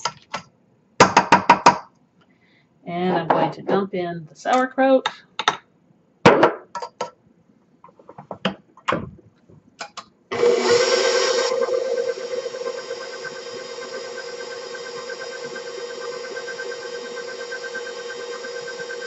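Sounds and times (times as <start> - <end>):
stand mixer motor hum: 10.3 - 19.0.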